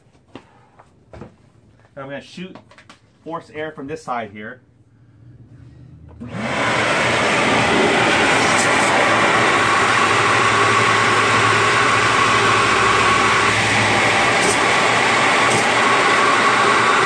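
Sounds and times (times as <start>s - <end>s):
air blower running: 5.4s - 17.0s.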